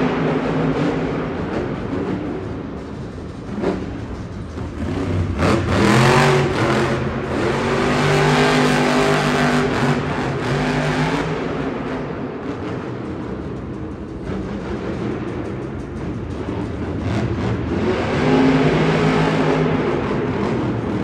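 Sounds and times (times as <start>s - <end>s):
truck engine revving hard: 4.6s - 12.0s, 16.4s - 21.0s.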